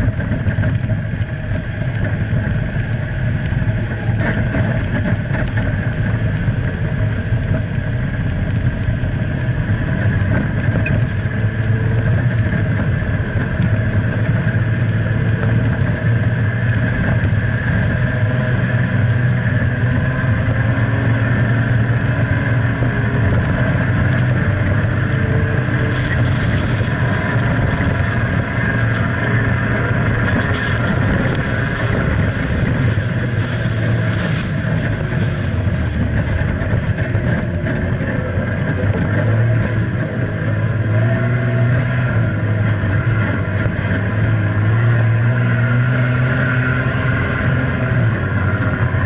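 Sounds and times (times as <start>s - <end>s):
engine and drivetrain drone: 0.0s - 49.0s
sand hissing from tyres: 30.2s - 36.2s.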